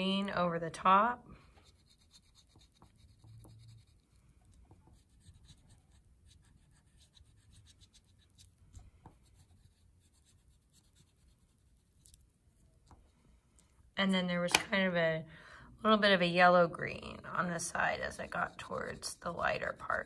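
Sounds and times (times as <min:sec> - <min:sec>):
oil pastel scratching on paper: 0:01.4 - 0:13.1, 0:16.7 - 0:20.0.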